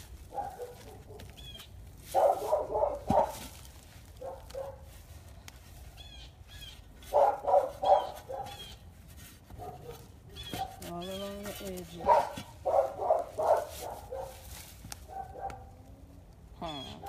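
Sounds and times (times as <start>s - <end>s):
dog barking: 0.3s - 1.4s, 2.1s - 3.5s, 4.2s - 4.8s, 7.1s - 8.7s, 9.6s - 10.8s, 12.0s - 15.8s.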